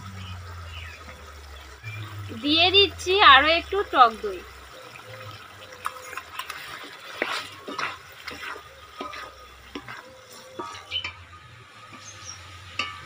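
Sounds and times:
spatula scraping in gravy: 6.0 - 11.2
spatula tapping metal pan: 7.2 - 11.3, 11.9 - 13.0.

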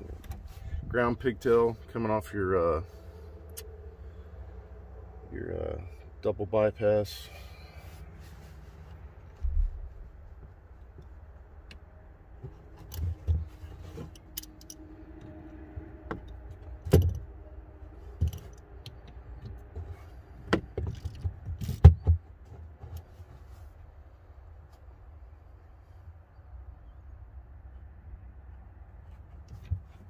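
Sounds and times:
small metal clicks and rattles: 14.0 - 15.4.

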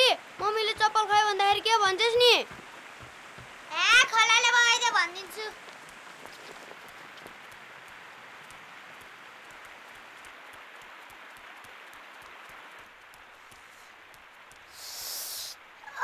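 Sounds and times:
stream rushing: 0.0 - 16.0
short high hiss: 14.6 - 15.6.

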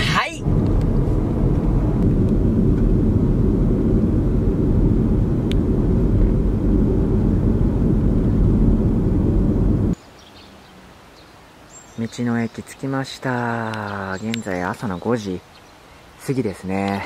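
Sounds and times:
car road and engine rumble: 0.0 - 11.1.

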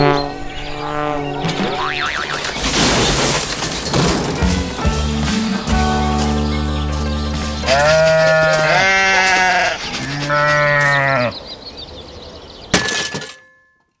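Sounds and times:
sheep bleating: 7.5 - 11.4.

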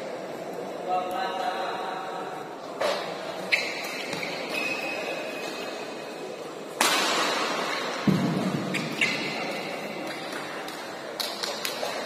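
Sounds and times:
shoes squeaking on court: 2.8 - 6.2, 8.6 - 10.4.

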